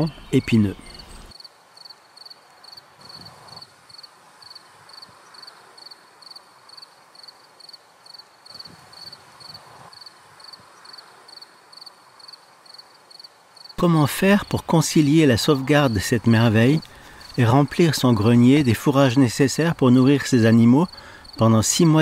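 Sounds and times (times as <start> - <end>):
soft outdoor hiss: 0.0 - 22.0
cricket chirping: 1.3 - 13.8.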